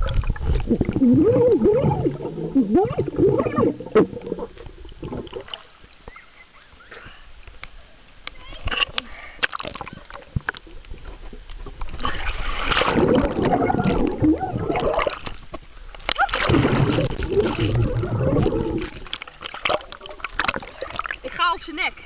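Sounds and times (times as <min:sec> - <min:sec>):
pool water splashing: 0:00.0 - 0:07.0, 0:11.9 - 0:15.5, 0:16.1 - 0:22.0.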